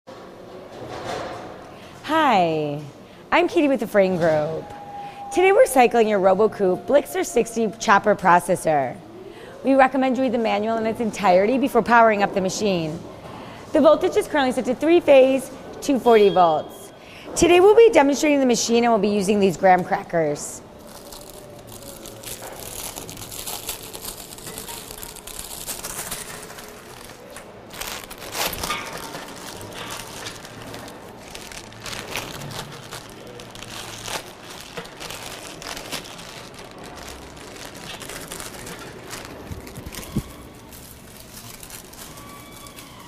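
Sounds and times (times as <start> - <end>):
wrapper crinkling and rustling: 20.8 - 43.0.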